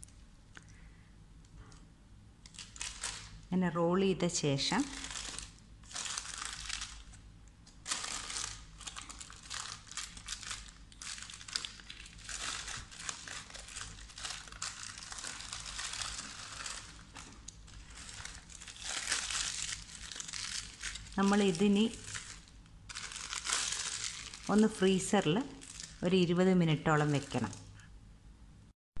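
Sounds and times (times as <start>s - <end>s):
paper crinkling and rustling: 2.5s - 3.4s, 4.7s - 26.0s, 26.9s - 27.7s.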